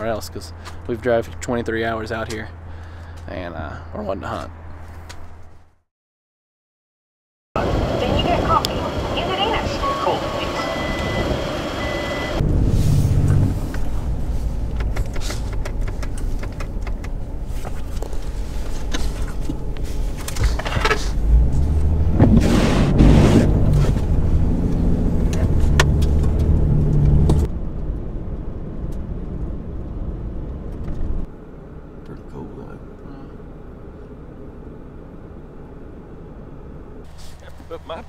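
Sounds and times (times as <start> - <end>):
vehicle engine and road rumble: 0.0 - 5.9, 7.6 - 38.0
clicks and knocks in car cabin: 14.7 - 17.8.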